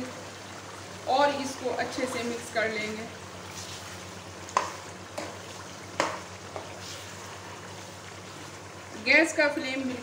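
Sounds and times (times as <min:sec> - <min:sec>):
gravy sizzling in a wok: 0:00.0 - 0:10.0
spoon knocking against pan: 0:04.5 - 0:05.4, 0:06.0 - 0:06.7.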